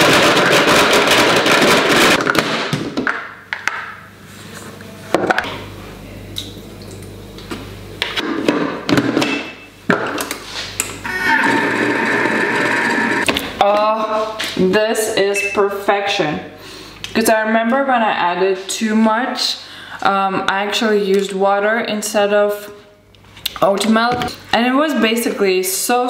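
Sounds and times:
blender running: 0:11.0 - 0:13.3.

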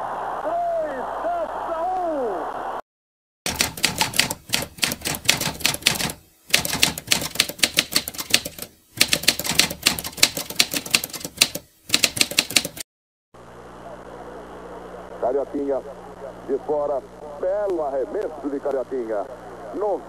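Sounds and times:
typewriter keystrokes clattering: 0:03.5 - 0:12.8.

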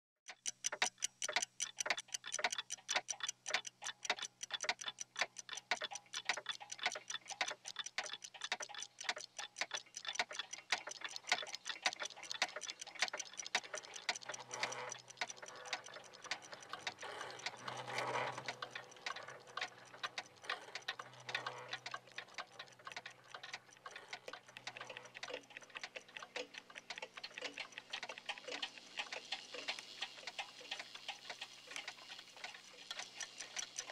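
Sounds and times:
many clocks ticking: 0:00.3 - 0:33.9.

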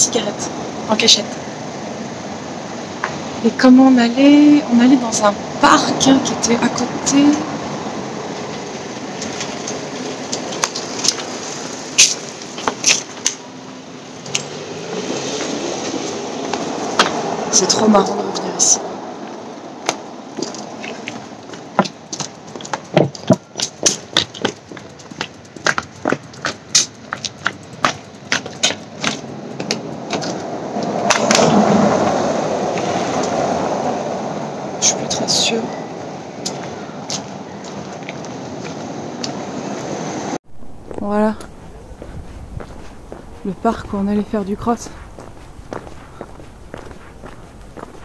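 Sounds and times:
street background noise: 0:00.0 - 0:48.0
footsteps on concrete steps: 0:19.8 - 0:30.4, 0:40.5 - 0:48.0
low rushing noise: 0:38.9 - 0:48.0.

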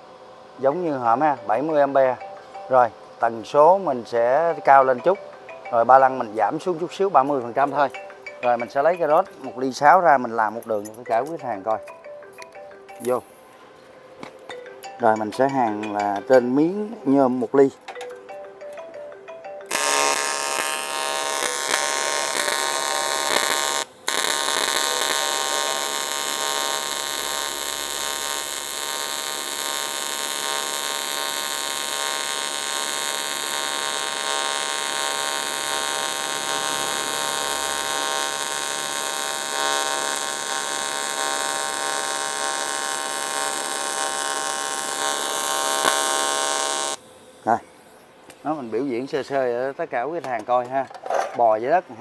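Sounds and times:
welding arc buzzing: 0:03.6 - 0:13.5, 0:19.6 - 0:47.6.

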